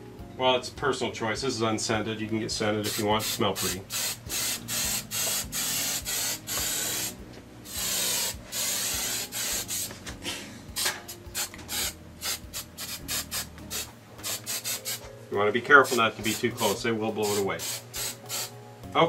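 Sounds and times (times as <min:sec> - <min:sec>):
aerosol can spraying: 0:02.8 - 0:10.0, 0:10.8 - 0:15.1, 0:15.8 - 0:18.6.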